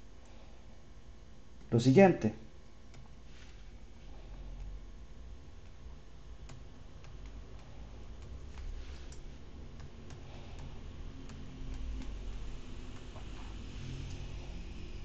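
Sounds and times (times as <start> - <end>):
low steady hum: 0.0 - 15.0
stylus tapping on a tablet: 6.4 - 13.4.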